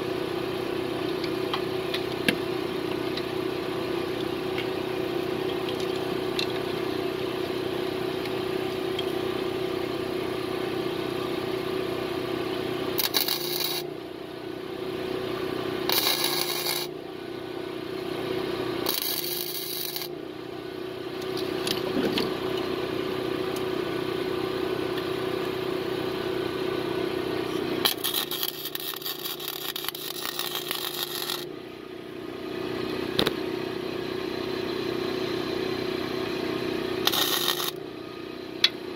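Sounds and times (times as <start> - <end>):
steady hum: 0.0 - 38.9
welder arc crackling: 13.0 - 13.8, 15.9 - 16.9, 18.8 - 20.1, 27.8 - 31.4, 37.0 - 37.8.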